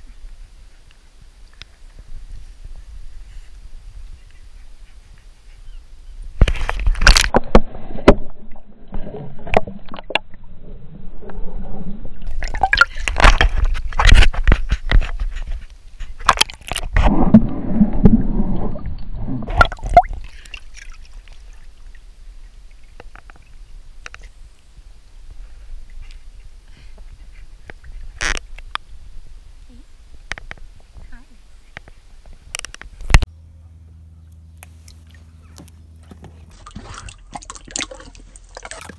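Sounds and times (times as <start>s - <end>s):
dog splashing in water: 36.5s - 38.9s.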